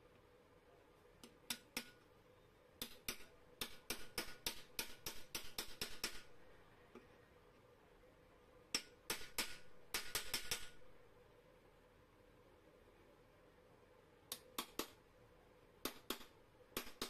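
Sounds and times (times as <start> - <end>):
hammer tapping metal: 1.2 - 2.0, 2.8 - 6.4, 8.7 - 10.8, 15.8 - 17.0.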